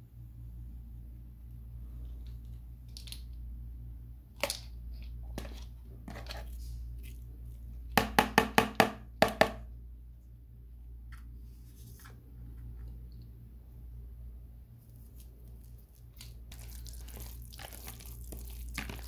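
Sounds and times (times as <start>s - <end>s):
steady low hum: 0.0s - 19.0s
spoon knocking plastic bowl: 8.0s - 9.6s.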